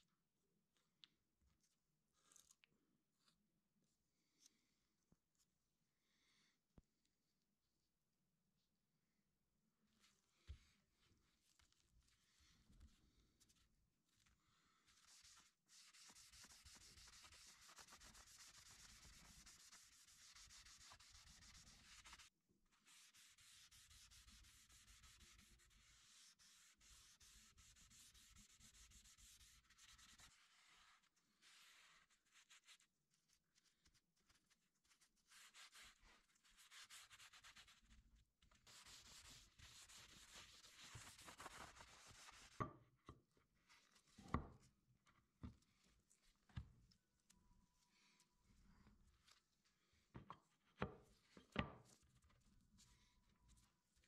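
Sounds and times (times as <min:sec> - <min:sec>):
cloth rag rubbing on board: 0:14.9 - 0:32.9, 0:33.6 - 0:37.9, 0:38.6 - 0:42.6.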